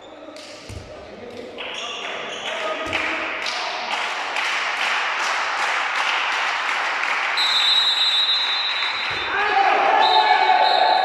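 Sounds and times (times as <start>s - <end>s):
ball bouncing on floor: 0.4s - 1.0s
spectators clapping in rhythm: 1.6s - 9.4s
short high whistle: 7.4s - 9.3s.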